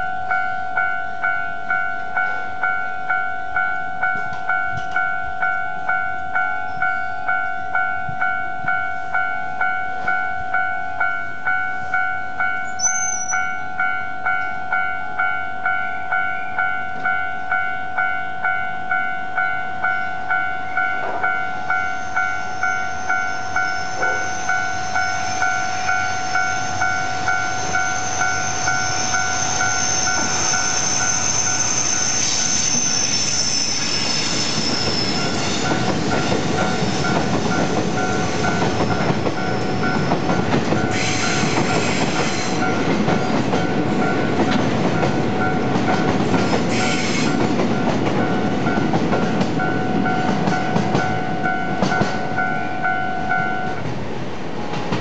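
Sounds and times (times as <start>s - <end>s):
level-crossing bell dinging: 0.0s - 41.0s
wheel squeal: 12.7s - 13.5s, 22.0s - 37.2s, 38.0s - 42.8s, 46.4s - 47.4s
train wheels rumbling: 20.4s - 55.0s.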